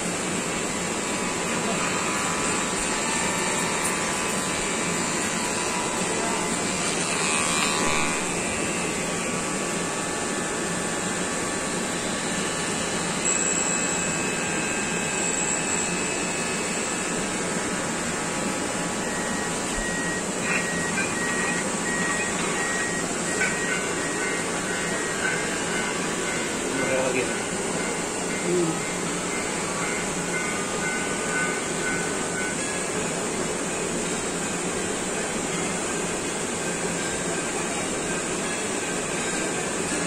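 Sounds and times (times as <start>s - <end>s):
electric hair clippers buzzing: 0.9s - 30.0s.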